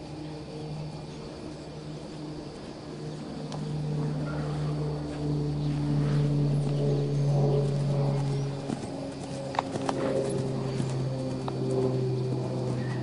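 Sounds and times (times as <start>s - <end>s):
low-pitched engine hum: 0.0s - 13.0s.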